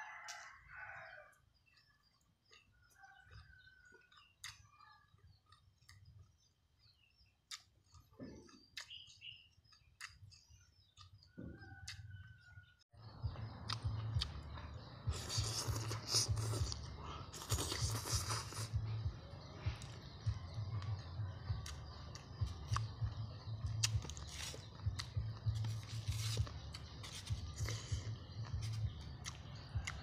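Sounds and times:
bird chirps: 1.6 - 30.0
person slurping and chewing: 15.1 - 18.9, 23.8 - 30.0.

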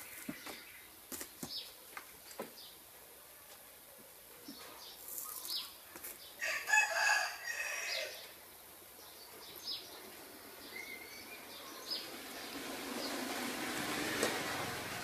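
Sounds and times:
small birds chirping: 0.0 - 6.6, 7.5 - 13.4
rooster crowing: 6.4 - 8.3.

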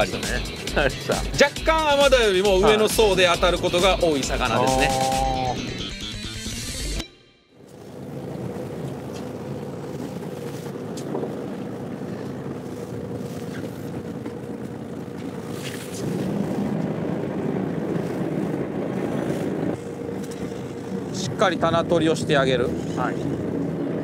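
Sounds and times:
waves washing: 0.0 - 5.7, 7.6 - 24.0
boat engine humming: 0.0 - 24.0
wind on microphone: 8.0 - 24.0.

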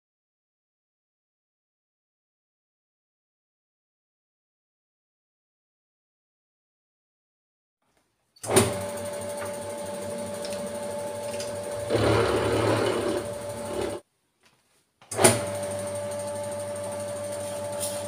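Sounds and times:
end mill cutting metal: 8.5 - 14.0
milling machine running: 8.5 - 14.0.

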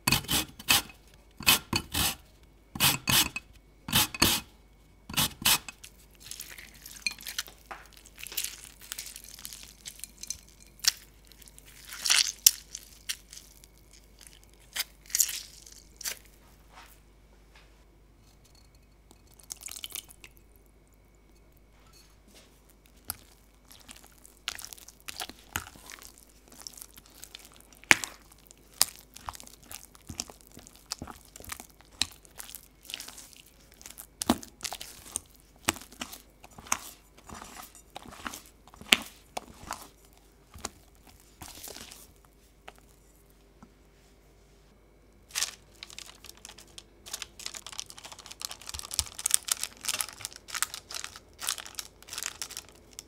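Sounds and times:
spatula stirring thick batter: 0.0 - 2.2, 2.8 - 4.5, 5.1 - 7.6, 22.9 - 43.2.

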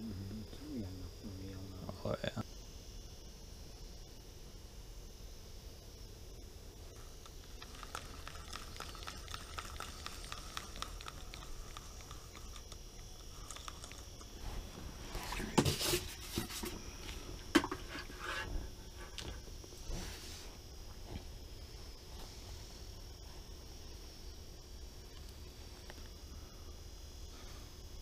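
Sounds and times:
fishing reel ticking: 7.0 - 14.4.

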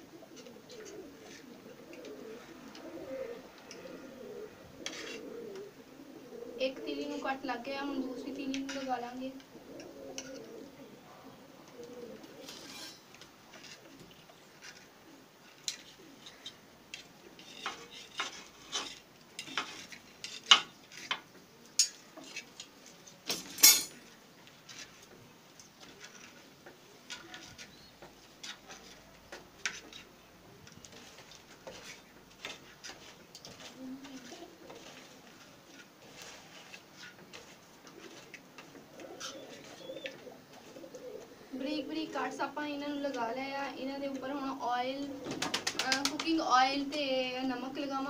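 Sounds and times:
knife tapping and scraping plate: 17.4 - 21.2.

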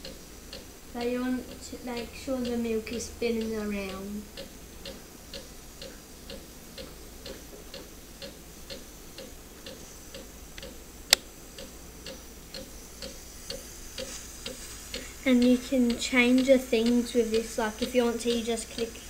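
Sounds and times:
faint steady low noise: 0.0 - 19.0
regular ticking: 0.0 - 19.0
sharp click: 10.6 - 11.3.

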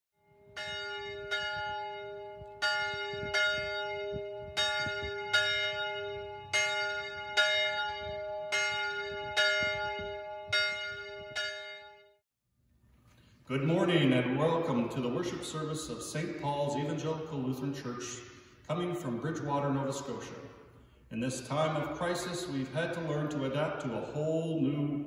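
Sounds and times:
church bell tolling: 0.4 - 12.2.

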